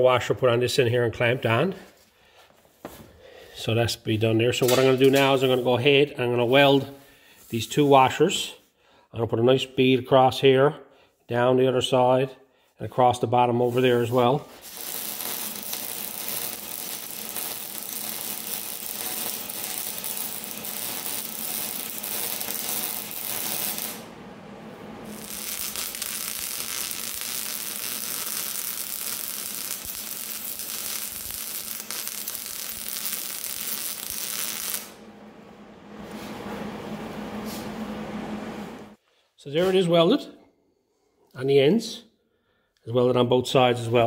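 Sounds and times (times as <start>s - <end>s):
arc welding crackling hiss: 13.8s - 24.1s, 25.0s - 35.0s.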